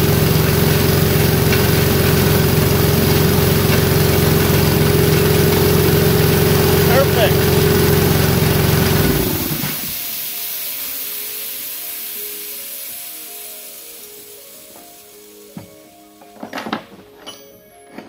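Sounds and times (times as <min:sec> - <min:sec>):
air compressor engine running: 0:00.0 - 0:12.6
air hissing: 0:00.0 - 0:16.2.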